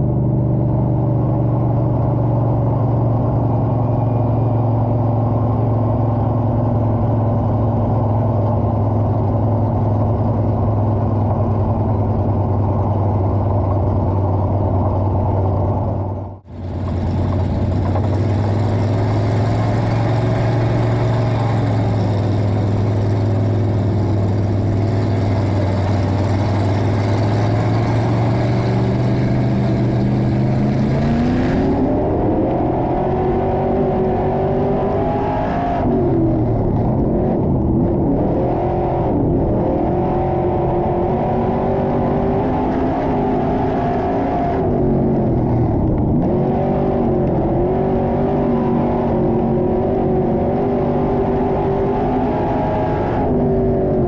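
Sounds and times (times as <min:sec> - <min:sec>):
race car engine revving: 0:16.4 - 0:54.0.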